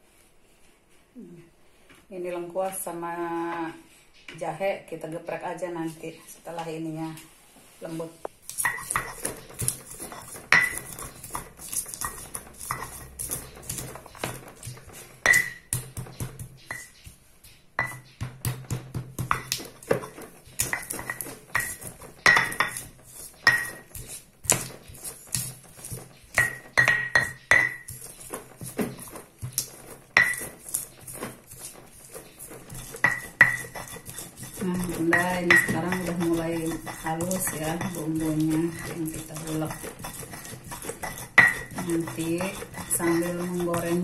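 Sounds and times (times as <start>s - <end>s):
stone pestle pounding in mortar: 8.5s - 17.1s, 17.8s - 44.0s.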